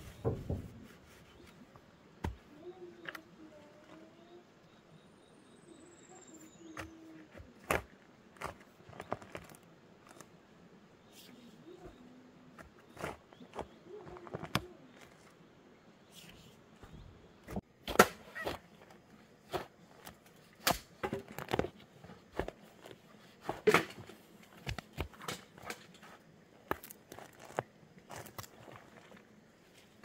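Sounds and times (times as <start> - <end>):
hand hoe chopping soil: 6.7 - 10.2, 12.6 - 15.1, 26.7 - 29.1.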